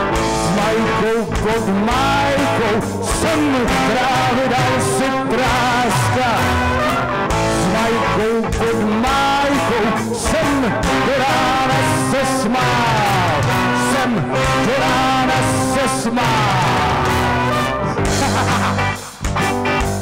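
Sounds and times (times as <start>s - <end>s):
drums: 0.0s - 20.0s
electric bass guitar: 0.0s - 20.0s
trumpet: 16.5s - 18.1s
trombone: 16.8s - 19.0s.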